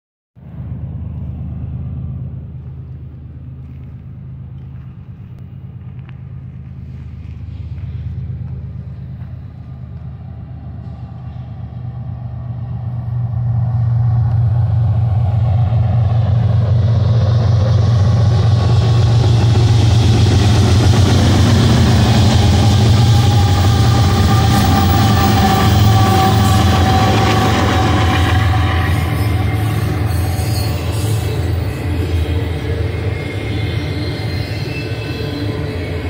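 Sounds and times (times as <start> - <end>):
diesel locomotive engines rumbling: 0.4 - 36.0.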